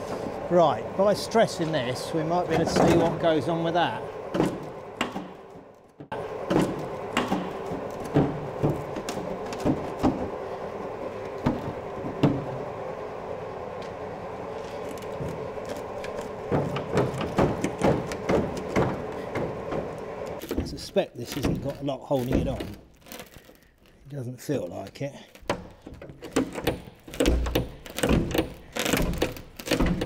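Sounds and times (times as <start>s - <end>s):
steady hum: 0.0s - 30.0s
metal panel knocks and creaks: 16.0s - 20.8s.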